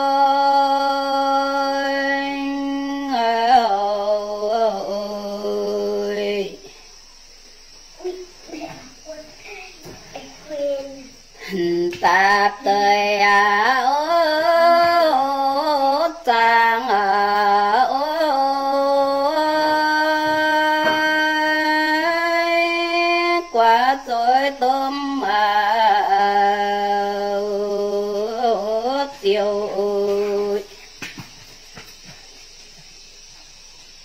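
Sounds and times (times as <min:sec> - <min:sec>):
woman singing unaccompanied: 0:00.0 - 0:07.0, 0:11.3 - 0:31.3.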